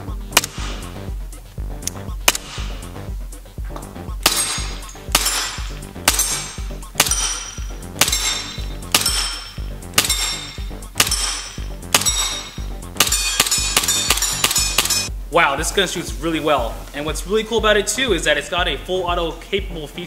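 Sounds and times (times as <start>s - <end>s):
steady bass: 0.0s - 20.0s
sharp ringing hit: 4.2s - 15.1s.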